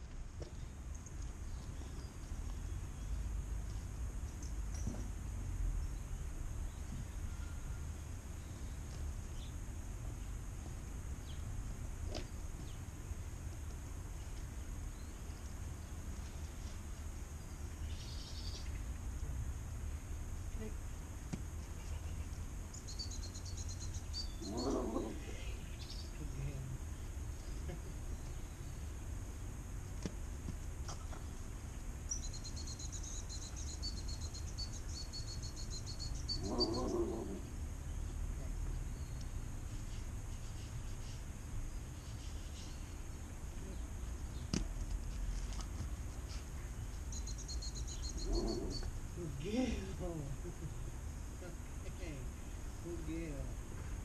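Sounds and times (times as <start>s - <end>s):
faint bird chirps: 21.8s - 28.9s, 32.1s - 44.5s, 46.3s - 49.6s.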